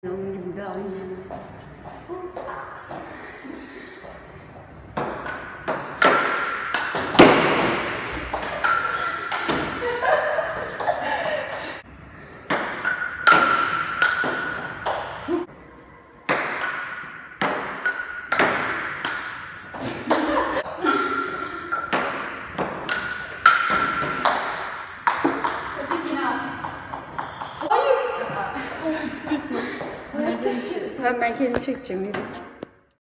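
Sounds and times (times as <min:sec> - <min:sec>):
table tennis ball clicking: 0:25.0 - 0:27.6.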